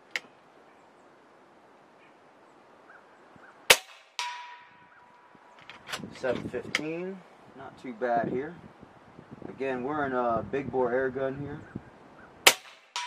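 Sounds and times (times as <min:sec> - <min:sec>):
air rifle shot crack: 0:03.7 - 0:05.0, 0:12.4 - 0:13.0
ringing target hit: 0:03.7 - 0:05.1, 0:12.5 - 0:13.0.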